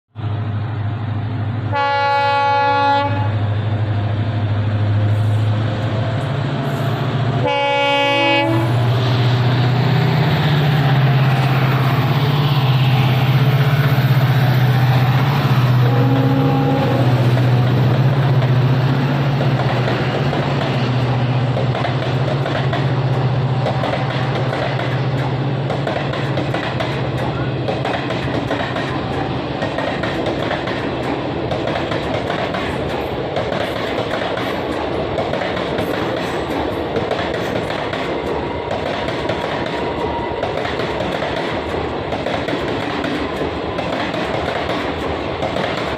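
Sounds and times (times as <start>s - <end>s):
locomotive engine drone: 0.2s - 29.8s
locomotive horn: 1.7s - 3.4s, 7.4s - 8.9s, 15.7s - 17.4s
train wheels clattering on rails: 1.7s - 45.9s.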